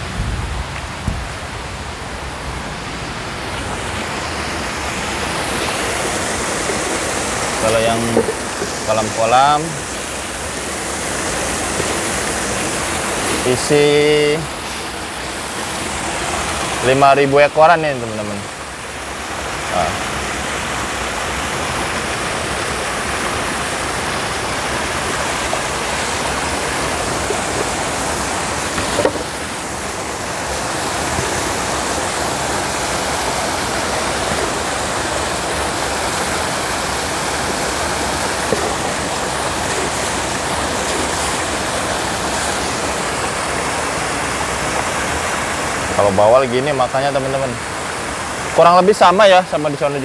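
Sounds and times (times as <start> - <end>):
water rushing and splashing: 0.0 - 50.0.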